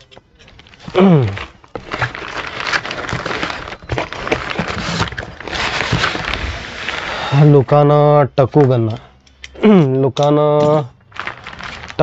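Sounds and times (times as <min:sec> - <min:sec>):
cardboard and packaging rustling: 0:00.0 - 0:07.7, 0:10.6 - 0:12.0.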